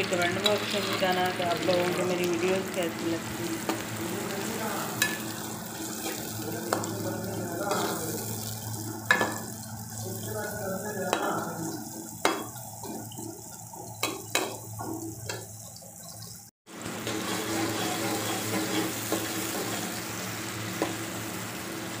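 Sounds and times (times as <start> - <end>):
onions frying in oil: 0.0 - 22.0
metal spoon scraping a pot: 17.1 - 19.9.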